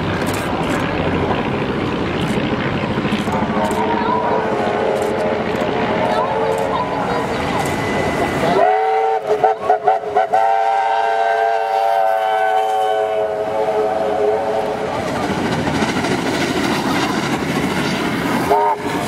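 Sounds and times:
rumble of passing train: 0.0 - 19.0
steam locomotive whistle: 7.7 - 14.9, 18.5 - 19.0.

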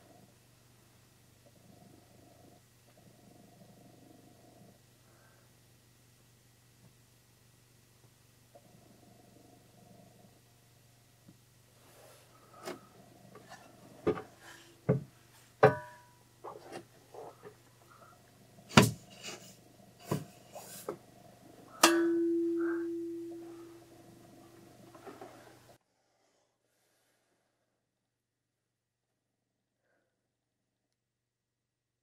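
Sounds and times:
loud ringing metal clang: 21.8 - 23.9.

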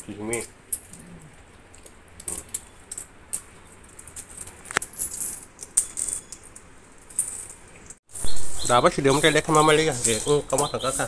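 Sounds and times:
coins clinking on concrete: 1.8 - 8.0, 9.2 - 11.0.

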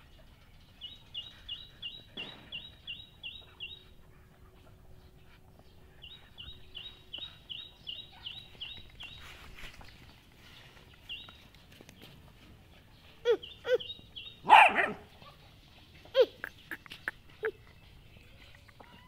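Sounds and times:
bird chirping: 0.0 - 19.0
young dogs yelping: 13.2 - 15.4.

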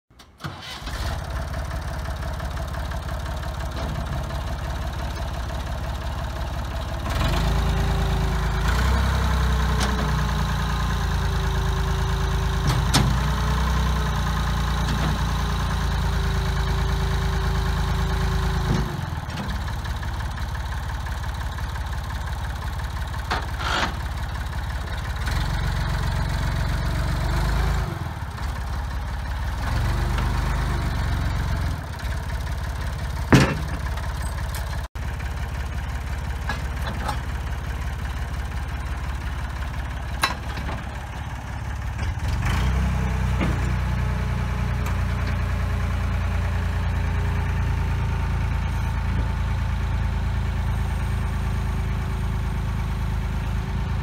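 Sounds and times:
tractor engine running: 0.1 - 54.0
clunks: 2.8 - 6.8, 9.6 - 10.3, 12.5 - 13.4, 22.2 - 25.2, 31.9 - 34.9, 36.0 - 46.2.

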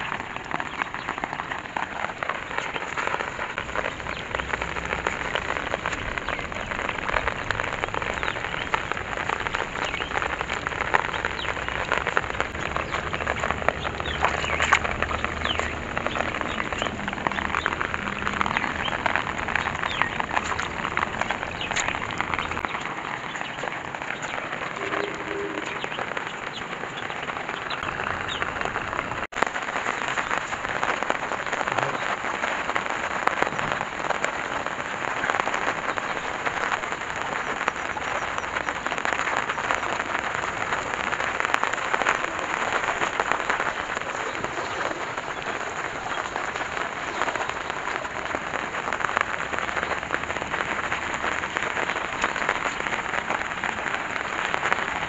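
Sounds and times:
rain on water and plastic sheeting: 0.0 - 55.0.

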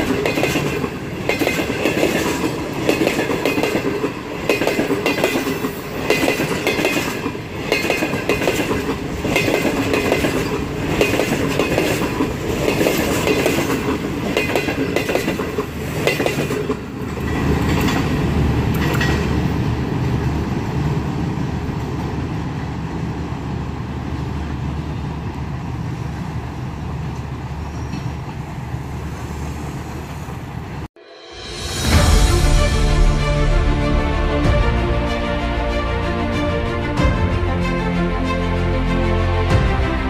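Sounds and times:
train wheels clattering: 0.0 - 19.6
low train rumble: 0.0 - 40.0.

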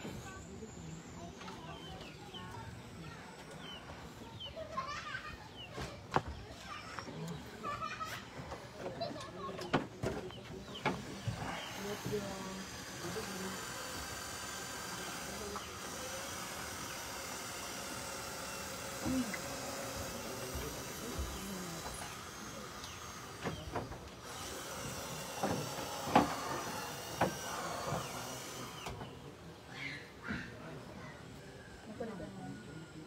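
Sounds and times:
cordless drill whirring: 11.0 - 29.2.

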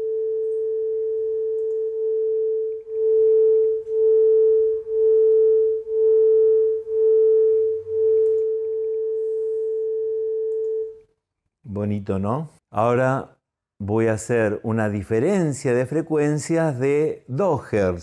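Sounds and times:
single steady tone: 0.0 - 11.0
two sine tones beating: 0.0 - 11.0.

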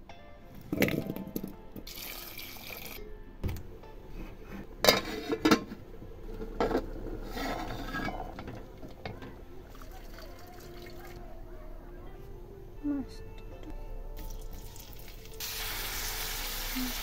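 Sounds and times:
pot and lid clanking: 4.8 - 9.4
running water: 14.2 - 17.0.

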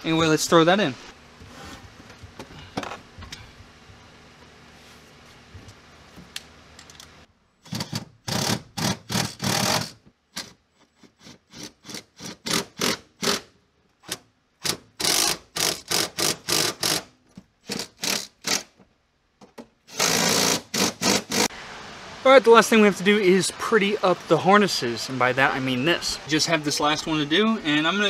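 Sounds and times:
cordless power tool bursts: 14.6 - 18.7, 19.9 - 21.5.

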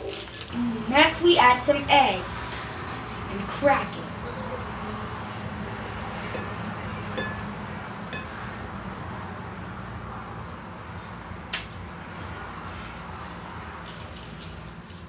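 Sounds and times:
sharp click: 11.5 - 11.7.

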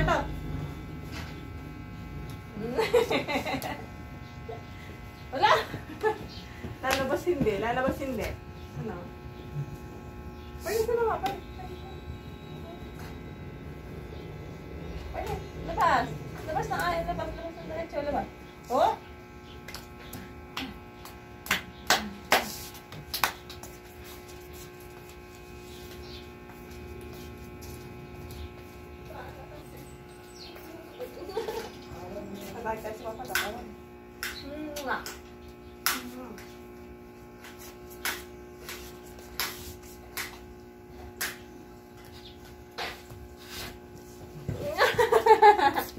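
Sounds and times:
steady low hum: 0.0 - 45.9
flip-flop footsteps on hard floor: 5.6 - 8.4.

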